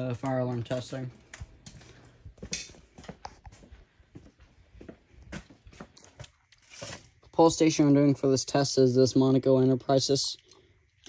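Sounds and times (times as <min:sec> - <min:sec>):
light footsteps and taps: 0:00.1 - 0:06.4.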